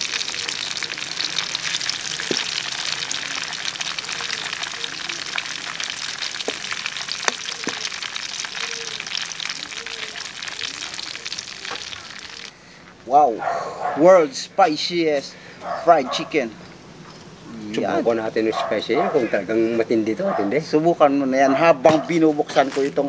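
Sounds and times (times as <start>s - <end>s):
chicken sizzling in oil: 0.0s - 12.6s.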